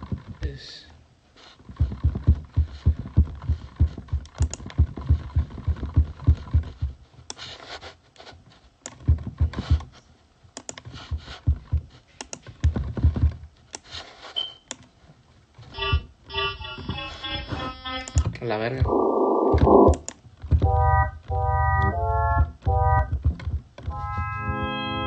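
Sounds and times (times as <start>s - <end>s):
typing on computer keyboard: 4.0s - 6.7s, 10.6s - 11.0s, 19.9s - 20.2s.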